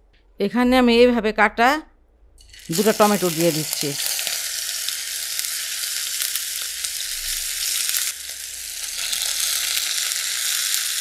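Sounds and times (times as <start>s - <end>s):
tomatoes sizzling in hot oil: 2.4s - 11.0s.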